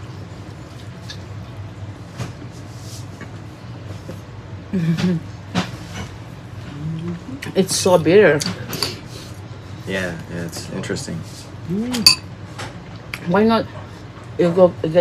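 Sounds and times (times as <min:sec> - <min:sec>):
low room hum: 0:00.0 - 0:15.0
person humming mm: 0:06.7 - 0:07.4.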